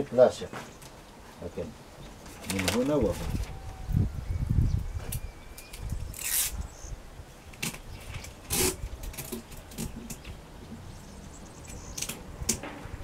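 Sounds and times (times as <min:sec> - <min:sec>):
paper rustling: 0:02.3 - 0:03.6
adhesive tape ripping: 0:06.0 - 0:06.6, 0:07.6 - 0:10.2.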